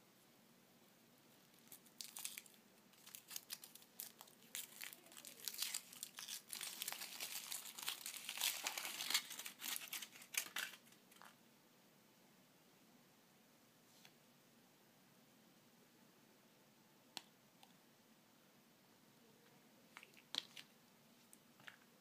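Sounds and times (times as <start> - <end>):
foil wrapper crinkling and tearing: 1.6 - 11.2.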